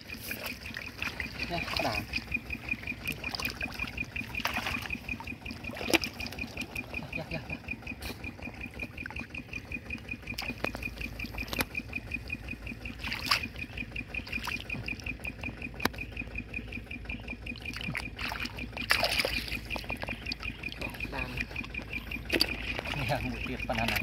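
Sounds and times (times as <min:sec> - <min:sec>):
hands splashing in muddy water: 0:00.0 - 0:07.1, 0:12.9 - 0:13.6, 0:17.6 - 0:24.0
rapid high-pitched chirping: 0:00.0 - 0:24.0.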